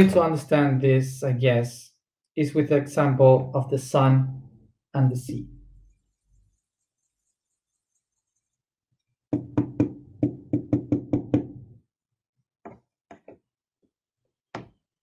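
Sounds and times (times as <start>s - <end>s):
marker knocking on whiteboard: 9.3s - 11.8s, 12.6s - 13.5s, 14.5s - 14.8s.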